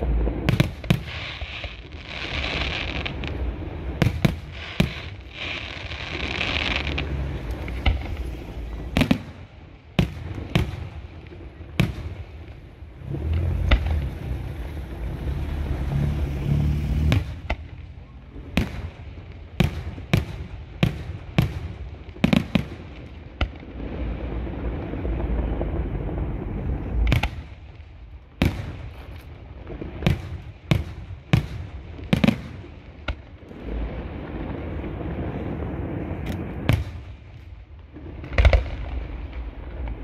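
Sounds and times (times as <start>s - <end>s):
fireworks bursting with sharp bangs: 0.0s - 40.0s
low rumbling: 6.2s - 22.0s, 23.6s - 31.2s, 32.7s - 40.0s.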